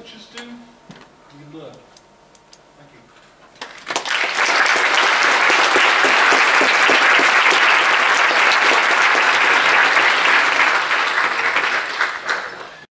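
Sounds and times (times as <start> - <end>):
audience applauding: 3.6 - 12.9.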